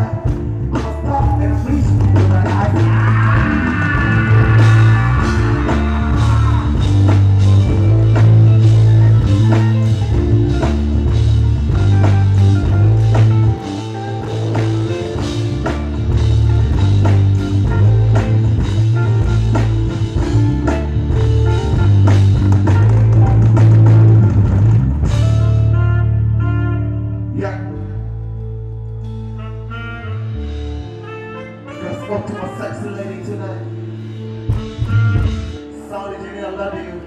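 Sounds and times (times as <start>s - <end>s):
loud music with heavy bass: 0.0s - 35.8s.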